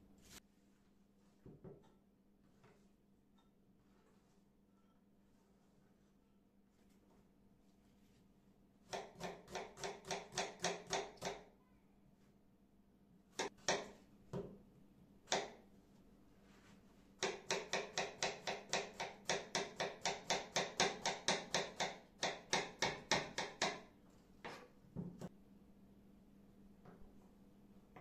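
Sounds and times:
knife chopping on wooden board: 8.9 - 11.4, 13.4 - 14.5, 17.2 - 23.8.

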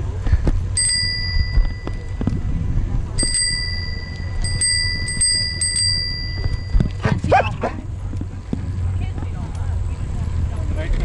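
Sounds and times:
low rumble: 0.0 - 11.0
bicycle bell dings: 0.7 - 2.4, 3.2 - 7.0.

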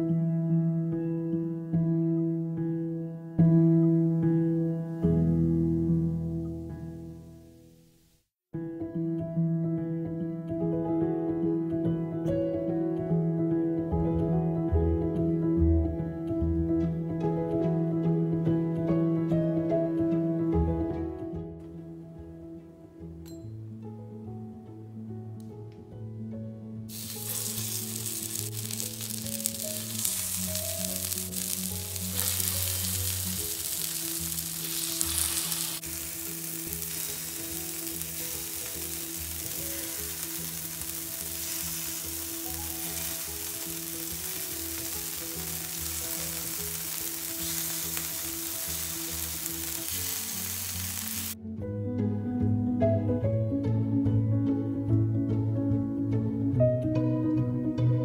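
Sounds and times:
soft background music: 0.0 - 7.8, 8.6 - 58.0
oil sizzling on a griddle: 26.9 - 51.4.

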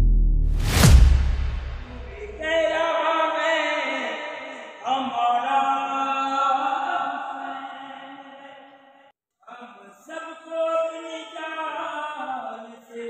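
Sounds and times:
sung vocal chant: 1.8 - 13.0.

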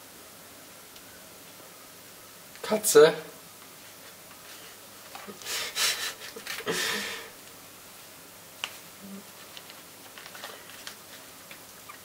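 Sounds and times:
paper packet rustling: 8.7 - 12.0.

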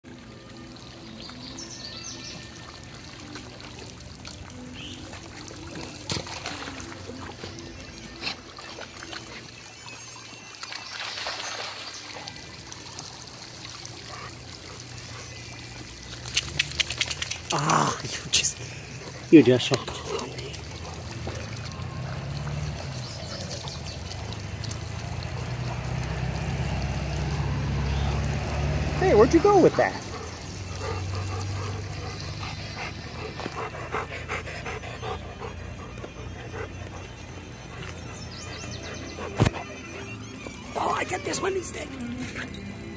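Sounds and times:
water jets splashing: 0.1 - 42.9
dog panting: 18.6 - 21.7, 29.9 - 40.2.

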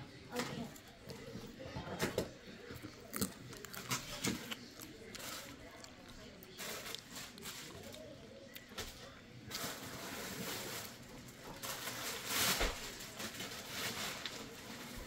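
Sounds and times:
plastic bag crinkling: 2.9 - 8.0.

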